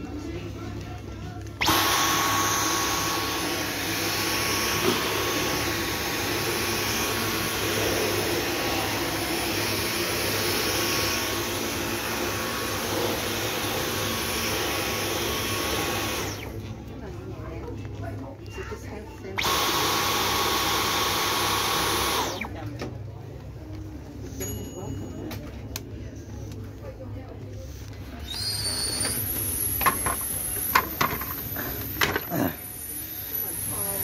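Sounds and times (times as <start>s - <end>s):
cordless vacuum running: 1.6s - 16.7s, 19.4s - 22.6s, 28.2s - 34.0s.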